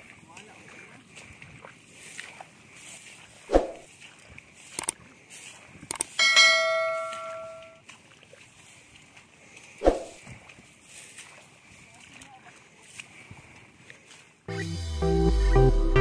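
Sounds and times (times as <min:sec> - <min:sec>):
bell chime: 0:06.2 - 0:07.8.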